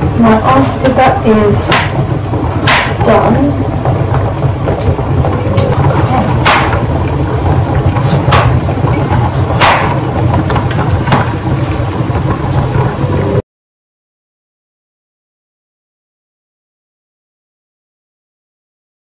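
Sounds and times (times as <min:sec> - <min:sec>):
steady low hum: 0:00.0 - 0:13.4.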